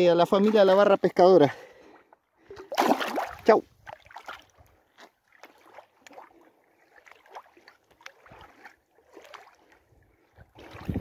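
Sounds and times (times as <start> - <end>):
river water lapping at shore: 0.0 - 11.0.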